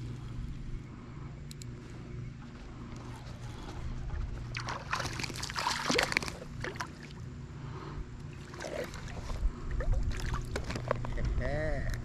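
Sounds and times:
steady low hum: 0.0s - 12.0s
fish splashing at the surface: 4.6s - 7.2s.

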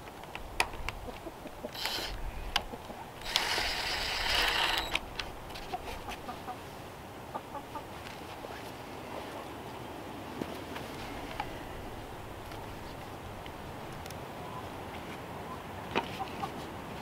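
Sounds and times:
cordless drill whirring: 1.7s - 2.2s, 3.2s - 5.0s.

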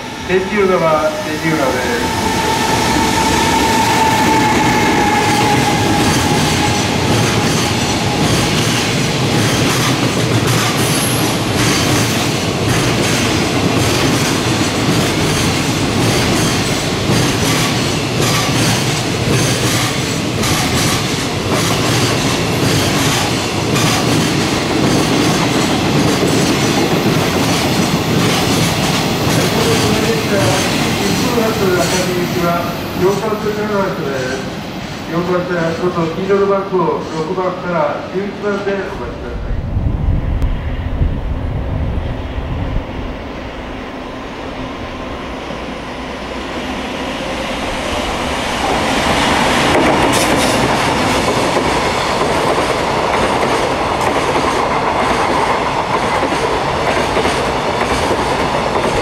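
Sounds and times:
locomotive high whine: 0.0s - 11.6s
train rumble: 0.0s - 59.0s
train wheels clattering over rail joints: 48.7s - 59.0s.

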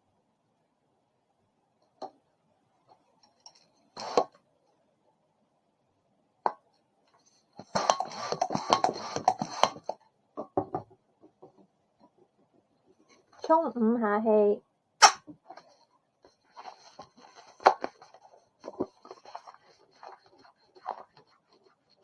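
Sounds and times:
balloon pump strokes: 7.6s - 9.9s
sharp snap: 15.0s - 15.3s.

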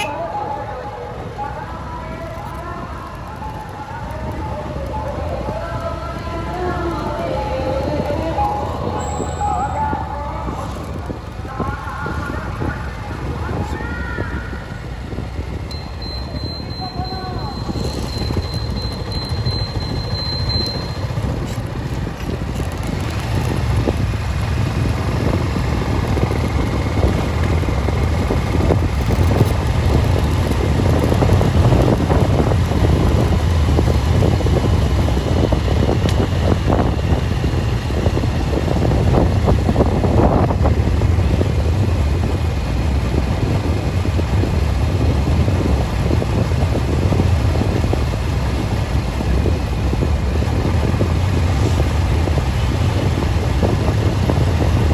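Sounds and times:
vehicle tyres rumbling on road: 0.0s - 54.9s
wind buffeting microphone: 0.6s - 20.1s, 20.9s - 54.9s.

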